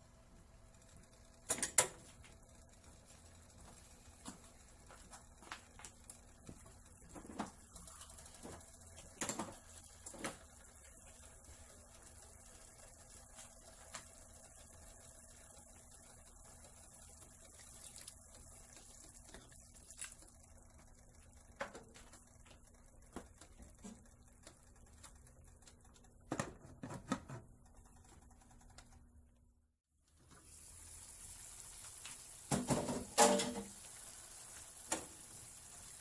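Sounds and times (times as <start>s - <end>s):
meat sizzling in a pan: 30.4s - 36.0s
cookware clattering: 32.6s - 33.7s.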